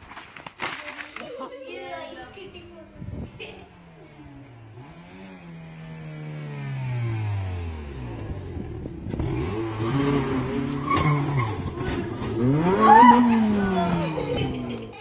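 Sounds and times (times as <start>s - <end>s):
race car engine revving: 3.7s - 15.0s.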